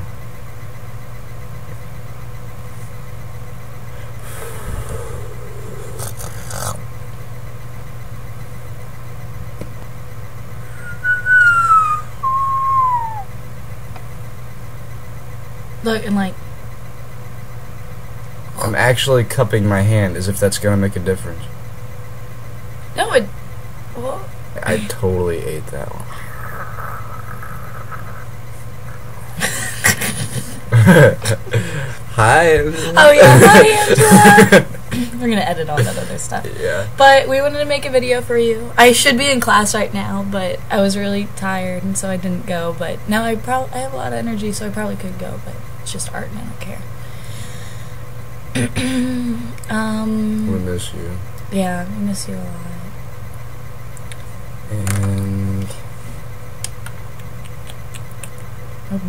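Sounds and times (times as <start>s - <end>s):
low electrical hum: 0.0s - 59.0s
person laughing: 26.2s - 28.3s, 28.9s - 32.1s, 32.8s - 35.2s, 35.8s - 37.0s.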